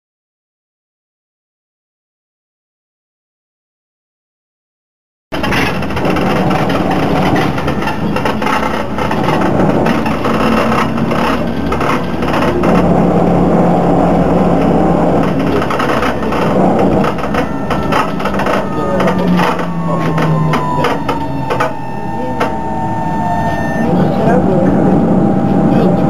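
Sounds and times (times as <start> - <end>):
bus body creaking and rattling: 5.3 - 26.0
steady low hum: 5.4 - 26.0.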